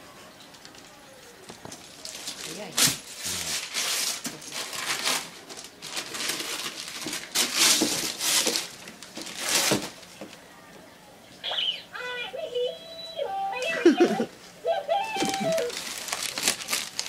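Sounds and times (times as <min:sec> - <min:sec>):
wrapping paper ripping: 0:01.7 - 0:10.1, 0:15.1 - 0:17.0.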